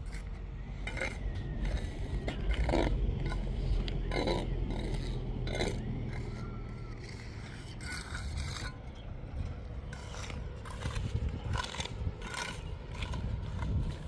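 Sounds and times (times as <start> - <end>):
steady low rumble: 0.0 - 14.0
short scrapes: 0.9 - 8.8.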